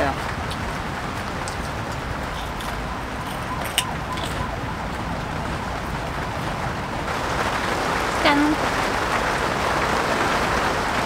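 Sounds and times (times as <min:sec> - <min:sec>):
rain on a tent: 0:00.0 - 0:11.0.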